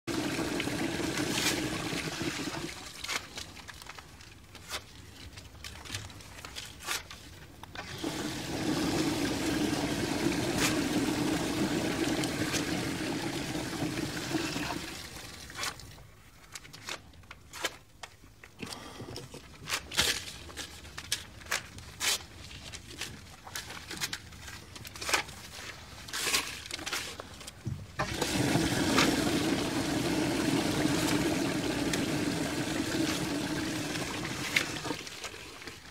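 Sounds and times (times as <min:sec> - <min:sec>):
toilet flushing: 0:00.1 - 0:02.9, 0:07.8 - 0:15.5, 0:28.0 - 0:35.7
paper banknotes crackling: 0:02.6 - 0:07.6, 0:19.6 - 0:27.6.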